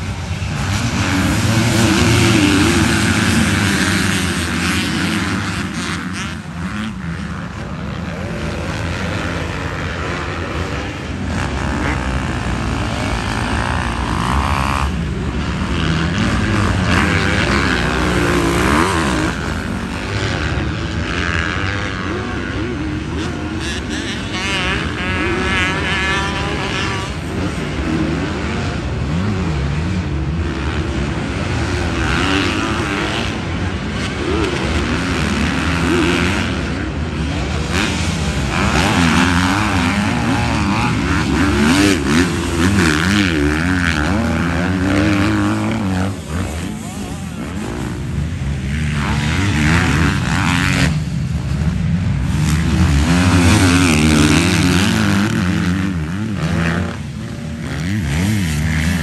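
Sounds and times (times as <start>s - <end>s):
motocross bike engines revving: 0.0s - 59.0s.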